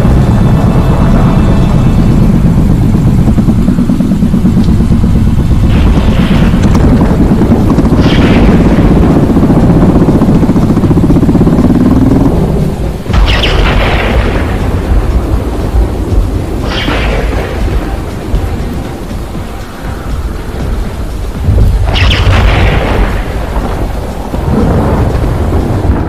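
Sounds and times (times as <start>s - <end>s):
deep rumbling drone: 0.0s - 26.0s
thunderclaps: 5.0s - 19.6s, 20.2s - 26.0s.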